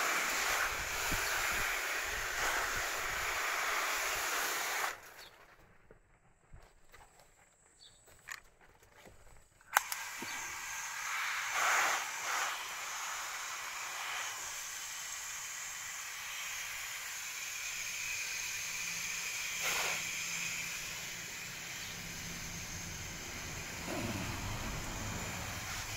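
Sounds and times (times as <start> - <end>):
hose spraying water on leaves: 0.0 - 5.2, 9.8 - 25.9
sharp click: 9.6 - 10.3.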